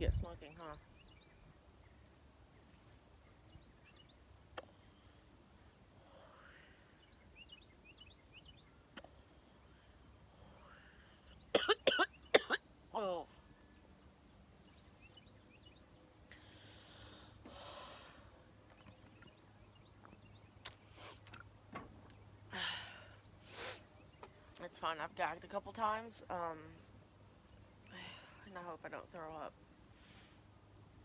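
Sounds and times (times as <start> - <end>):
person coughing harshly: 11.6 - 12.6.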